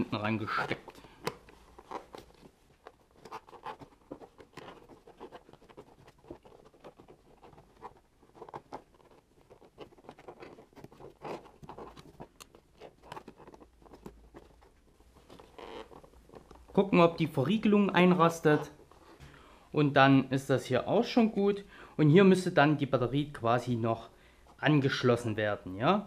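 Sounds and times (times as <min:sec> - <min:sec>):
gloved hands rustling cable: 0:00.0 - 0:19.4.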